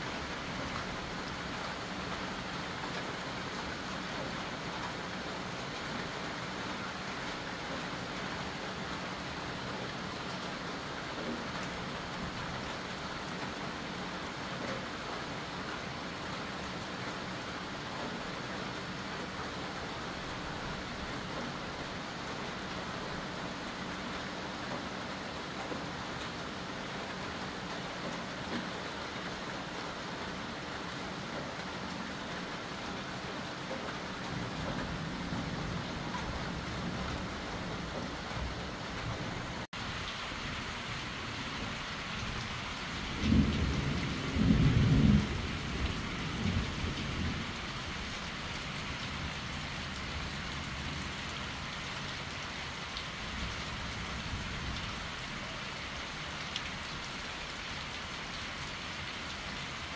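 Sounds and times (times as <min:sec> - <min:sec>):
heavy rain falling: 0:00.0 - 0:59.9
thunder rumbling: 0:43.1 - 0:47.6.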